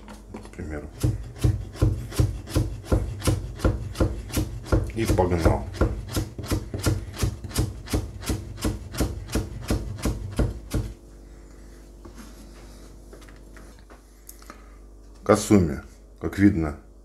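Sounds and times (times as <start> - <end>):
knife chopping carrot on board: 0.9 - 10.9.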